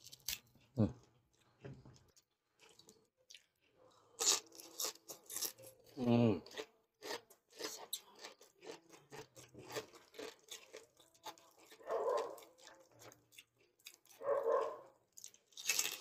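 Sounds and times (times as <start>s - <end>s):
crunchy food being chewed: 0.0s - 16.0s.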